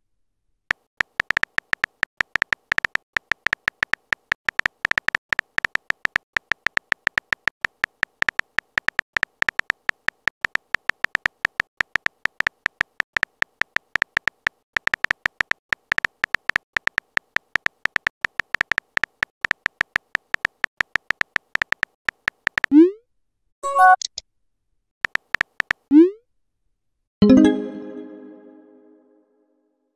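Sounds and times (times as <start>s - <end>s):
keyboard tap clicks: 25.0s - 25.8s.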